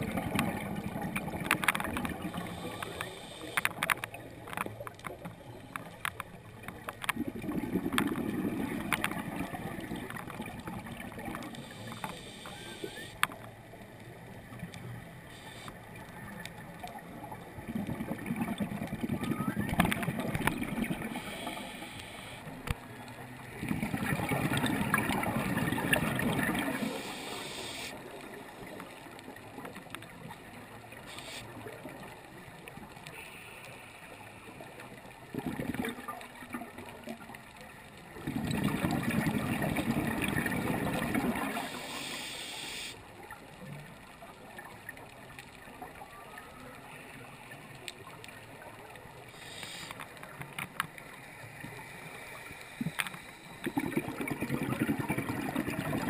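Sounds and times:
water gurgling and bubbling: 0.0s - 4.6s, 7.0s - 13.0s, 17.1s - 21.6s, 23.4s - 27.6s, 35.2s - 37.2s, 38.0s - 42.0s, 52.8s - 56.0s.

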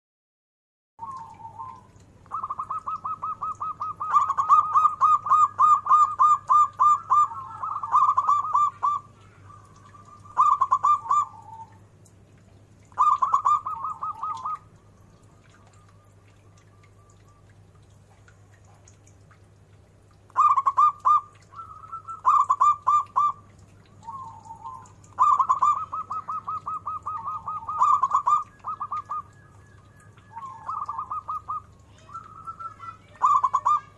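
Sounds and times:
dove cooing: 1.0s - 11.8s, 12.9s - 14.7s, 20.3s - 33.9s.

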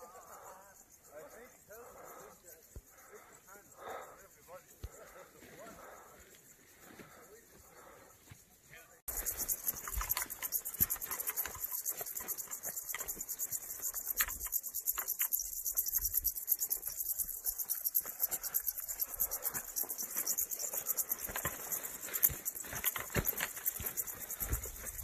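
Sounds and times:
grasshoppers and crickets chirring: 0.0s - 25.0s
footsteps brushing through grass: 19.8s - 25.0s.

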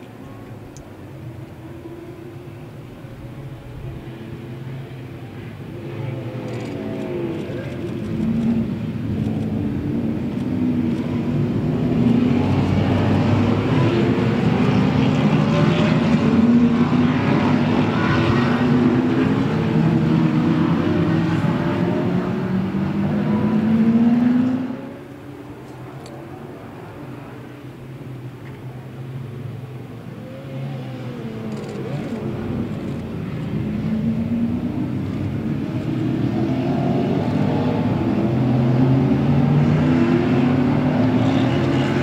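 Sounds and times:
racing car engines revving: 5.3s - 27.7s, 29.2s - 42.0s.

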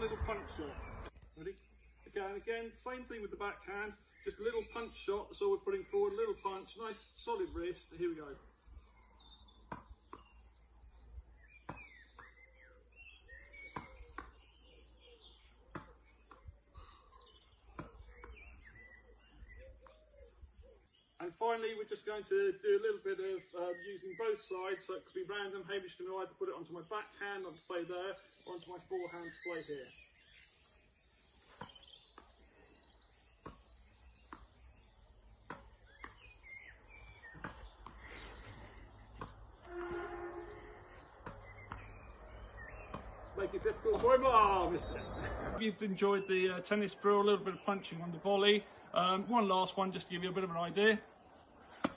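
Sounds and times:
birds calling: 0.0s - 51.9s
tennis ball knocking off racket: 9.6s - 10.4s, 11.6s - 12.4s, 13.6s - 14.6s, 15.7s - 16.5s, 33.4s - 34.6s, 35.4s - 36.4s, 37.2s - 38.2s, 39.1s - 39.6s, 41.2s - 44.2s.

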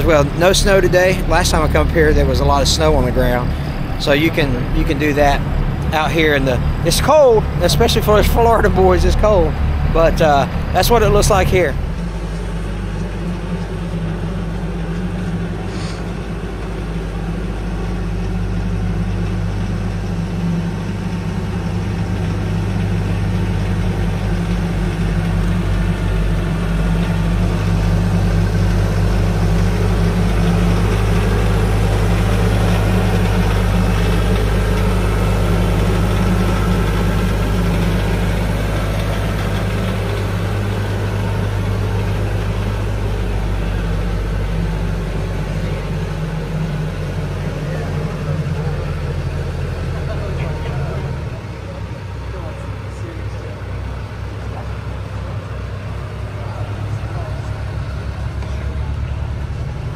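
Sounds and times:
low engine drone: 0.0s - 59.9s.

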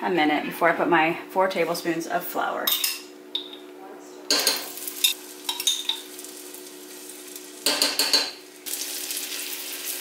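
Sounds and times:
spoon clinking against glass: 4.3s - 6.0s
garlic sizzling in butter: 4.6s - 10.0s.

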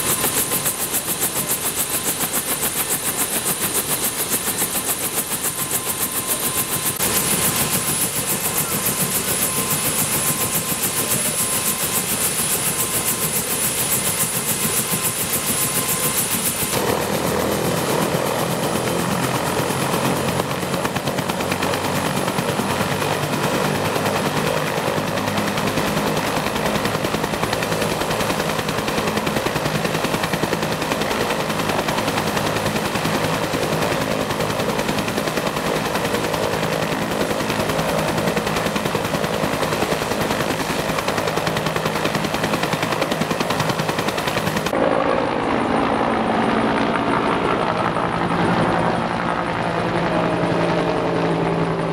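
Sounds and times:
helicopter rotor blades beating: 0.0s - 51.9s
turbine whine: 44.3s - 50.4s.

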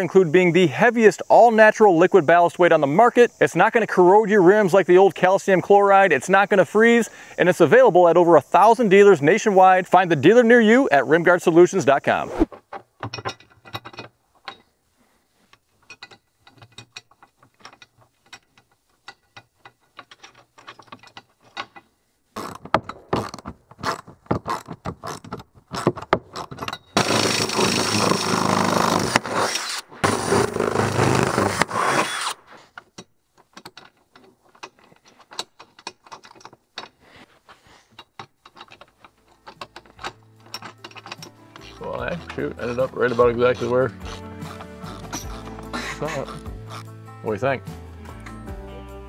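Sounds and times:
ratchet wrench clicking: 38.4s - 46.9s.

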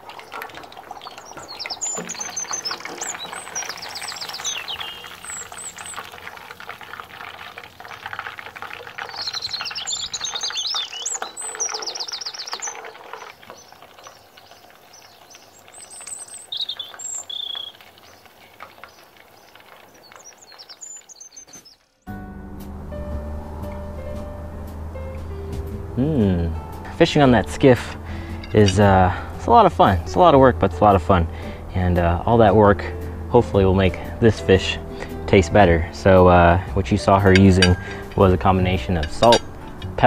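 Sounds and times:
fish deep-frying in oil: 0.0s - 22.0s, 36.0s - 40.0s
songbirds chirping: 0.0s - 40.0s.

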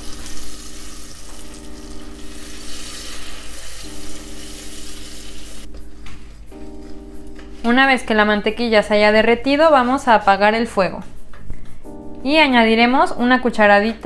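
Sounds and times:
butter sizzling in hot sugar: 0.0s - 5.7s.

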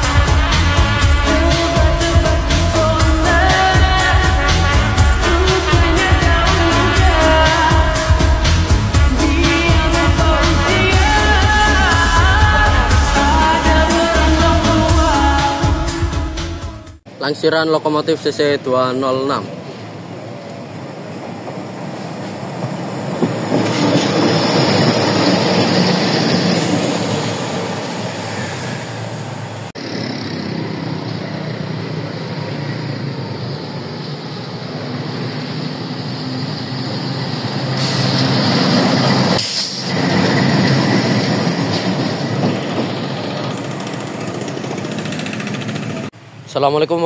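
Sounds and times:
diesel engine running: 29.5s - 46.2s
wheels rolling on rails: 32.1s - 46.1s.

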